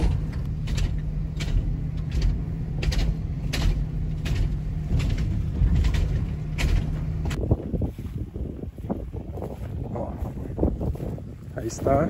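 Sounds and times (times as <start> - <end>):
tyres clacking over bridge joints: 0.0 - 7.4
road and engine rumble: 0.0 - 12.0.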